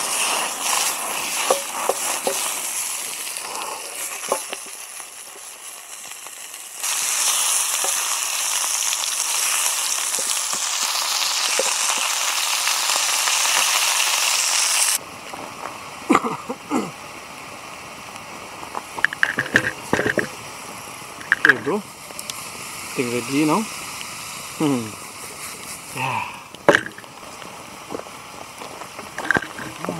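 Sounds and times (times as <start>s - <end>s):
sharp crackles and knocks: 0.0s - 12.3s, 18.2s - 22.5s, 26.6s - 29.9s
food sizzling in a pan: 0.0s - 15.0s, 17.0s - 29.9s.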